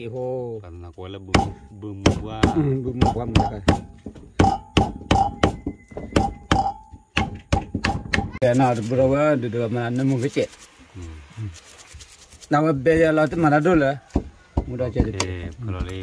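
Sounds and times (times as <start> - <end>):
knife chopping on a block: 1.3 - 8.4, 13.6 - 16.0.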